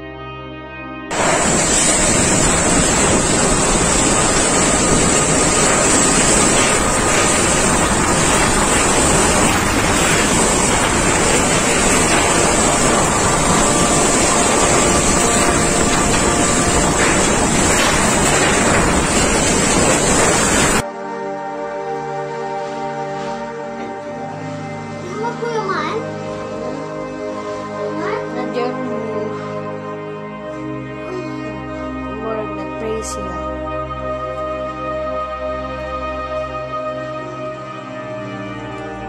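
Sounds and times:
brass music: 0.0 - 39.0
wind buffeting microphone: 1.1 - 20.8
driving rain: 1.1 - 32.2.

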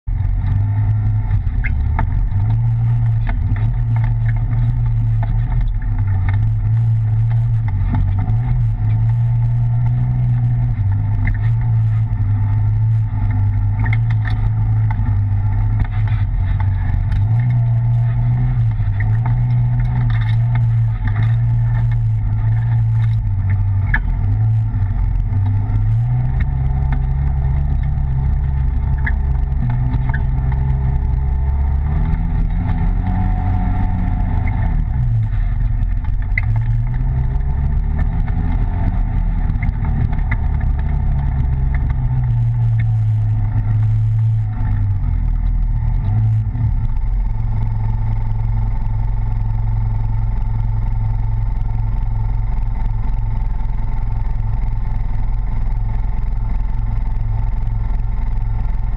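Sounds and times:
vehicle engine droning: 0.0 - 58.9
small clicks and rattles: 0.1 - 58.9.

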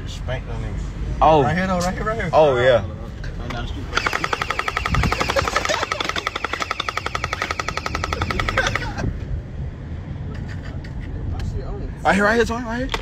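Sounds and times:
motor whining: 3.9 - 8.9
toy gun firing rapid pops: 4.0 - 9.0.

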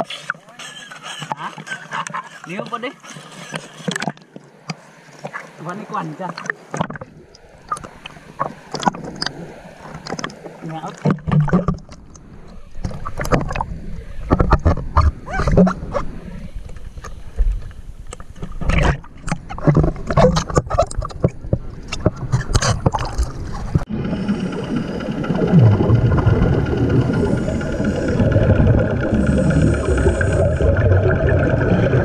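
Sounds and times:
muffled water splashing: 0.0 - 32.0
steady hum: 23.2 - 32.0.

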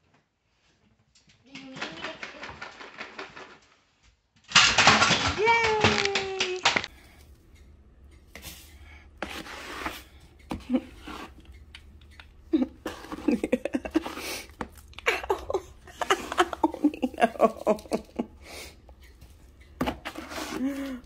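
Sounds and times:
scoop scraping cat litter: 8.4 - 10.2, 10.8 - 11.5, 12.8 - 14.7, 19.8 - 20.7.

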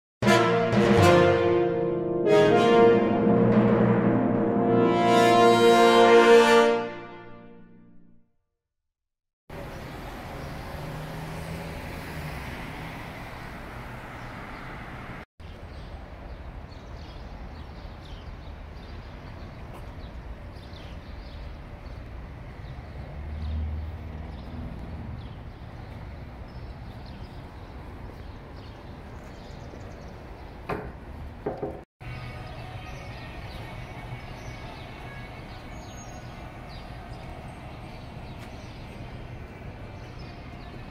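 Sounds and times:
traffic noise: 9.5 - 40.9
vehicle passing: 9.6 - 15.2, 22.1 - 29.0
sharp knocks: 30.7 - 31.8.

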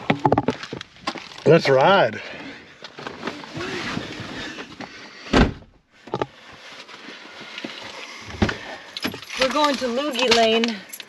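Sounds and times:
car door slamming shut: 5.3 - 5.7.

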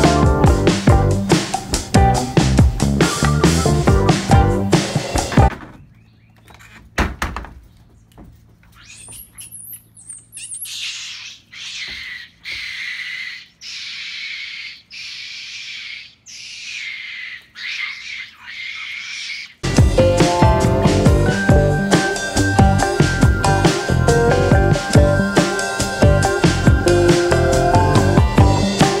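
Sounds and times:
buzzing animal call: 8.6 - 29.0
high chirps: 8.7 - 19.6.

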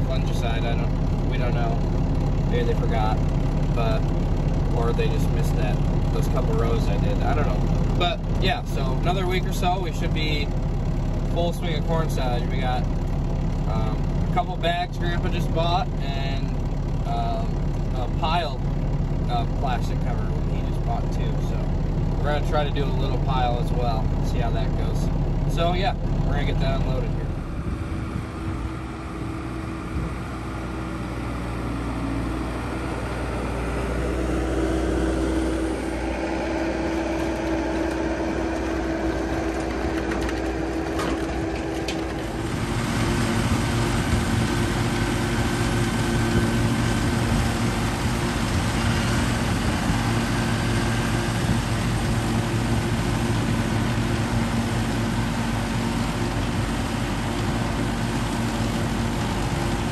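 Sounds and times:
skid-steer loader engine running: 0.0 - 59.9
tractor engine: 0.0 - 59.9
forage chopper chopping corn: 36.8 - 49.5.

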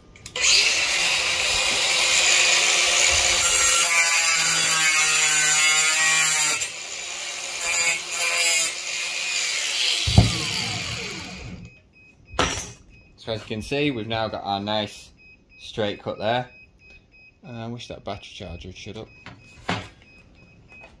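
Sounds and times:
angle grinder cutting steel: 0.3 - 11.7
grinder disc whining down: 9.9 - 11.7
sharp knock: 10.1 - 10.5.

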